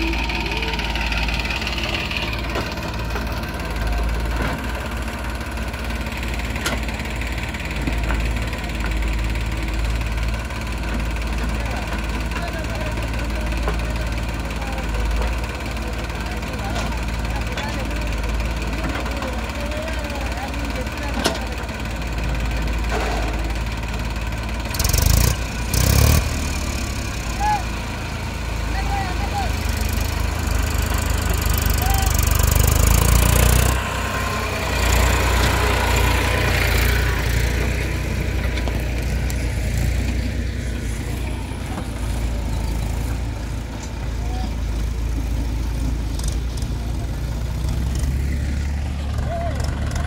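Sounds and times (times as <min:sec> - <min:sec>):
diesel engines running: 0:00.0 - 0:50.0.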